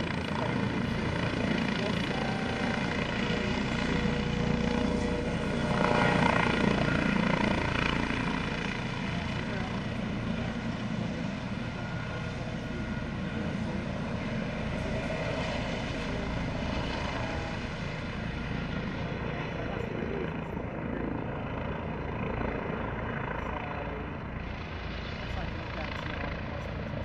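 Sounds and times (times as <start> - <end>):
helicopter hovering: 0.0 - 27.0.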